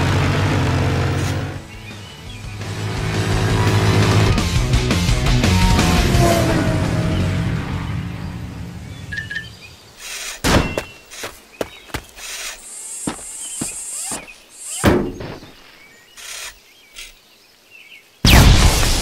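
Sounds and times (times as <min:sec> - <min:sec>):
loud music: 0:02.6 - 0:07.3
mechanical clanks and thunks: 0:14.2 - 0:15.6.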